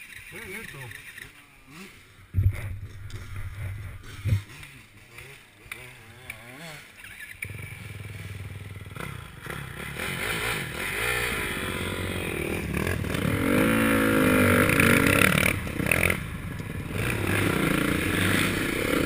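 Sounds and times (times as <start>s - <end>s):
dirt bike engine revving: 0.0s - 19.0s
bike clattering over bumps: 2.3s - 6.0s.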